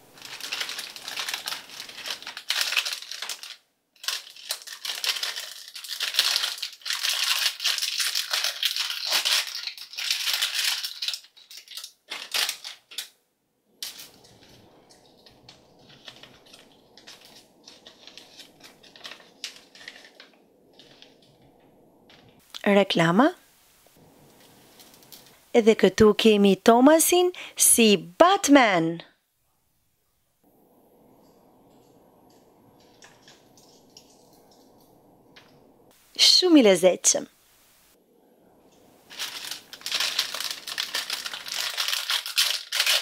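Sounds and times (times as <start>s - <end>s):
paper leaflet rustling: 0.0s - 13.0s, 13.8s - 21.4s, 38.7s - 43.0s
plastic bag crinkling: 0.0s - 23.0s, 23.8s - 25.9s, 30.7s - 36.0s, 38.6s - 43.0s.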